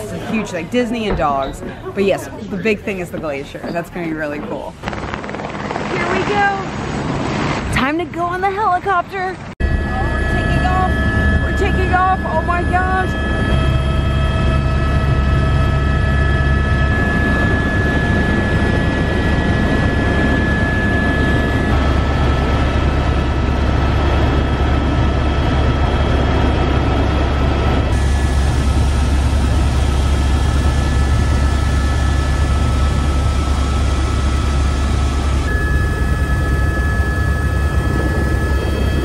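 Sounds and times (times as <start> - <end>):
helicopter engine and rotor drone: 4.7 - 7.5, 9.4 - 39.0
high whine: 9.6 - 39.0.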